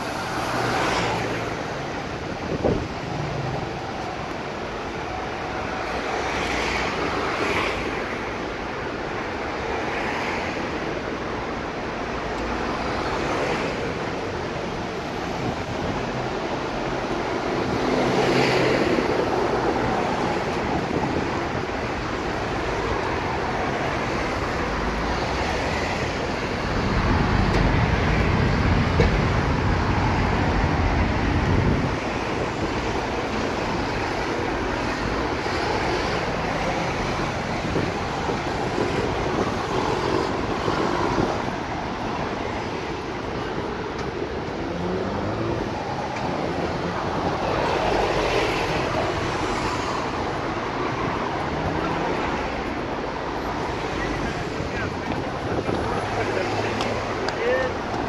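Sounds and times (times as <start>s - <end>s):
heavy vehicle rumble: 0.0s - 9.7s, 10.5s - 58.0s
cars and buses passing: 0.0s - 58.0s.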